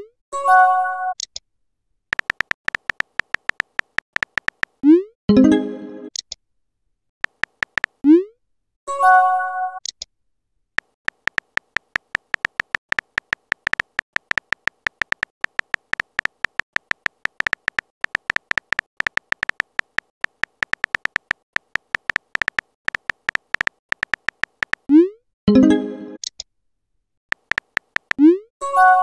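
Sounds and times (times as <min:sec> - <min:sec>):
phone keyboard typing clicks: 0:02.1 - 0:04.8, 0:07.2 - 0:08.0, 0:10.8 - 0:24.9, 0:27.3 - 0:28.2.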